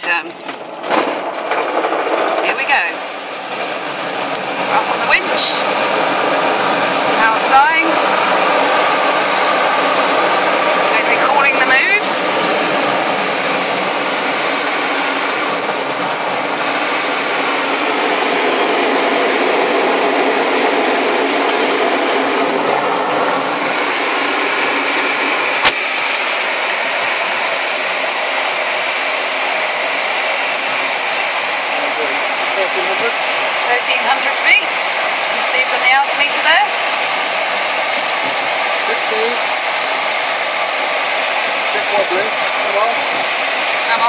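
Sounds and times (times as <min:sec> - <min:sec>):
rush of air over glider canopy: 0:00.0 - 0:44.0
sharp click: 0:25.6 - 0:26.1.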